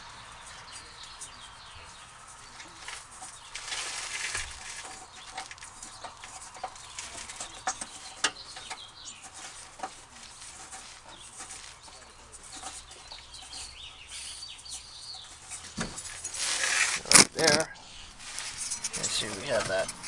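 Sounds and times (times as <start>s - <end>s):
metal clicks and scrapes: 2.5s - 20.0s
short high squeaks: 15.5s - 20.0s.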